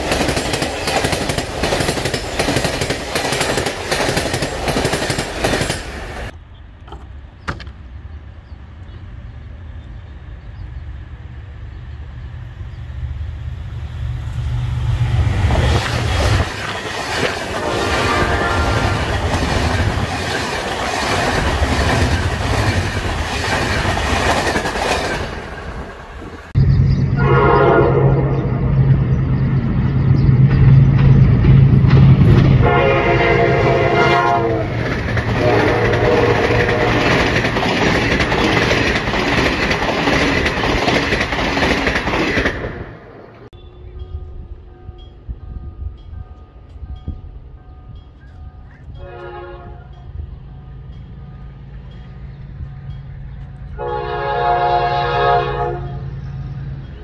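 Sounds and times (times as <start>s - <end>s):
train wheels clattering over rails: 0.0s - 6.3s, 15.5s - 26.4s, 34.6s - 42.8s
diesel locomotive engine rumble: 0.0s - 57.0s
train horn: 17.4s - 19.2s, 27.1s - 28.6s, 32.6s - 37.4s, 48.8s - 50.1s, 53.7s - 56.1s.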